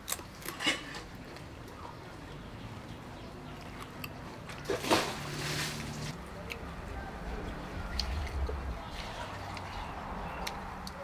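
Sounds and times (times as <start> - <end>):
chewing: 6.1 - 11.0.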